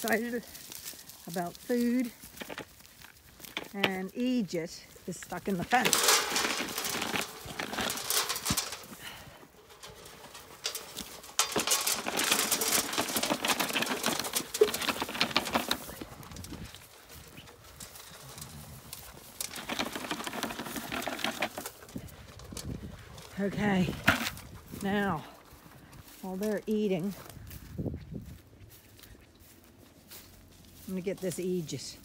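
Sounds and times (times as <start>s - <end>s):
hooves scuffing: 0.0s - 32.0s
sheep crunching feed: 0.0s - 32.0s
dry feed rattling into metal trough: 5.5s - 16.4s, 17.8s - 22.6s.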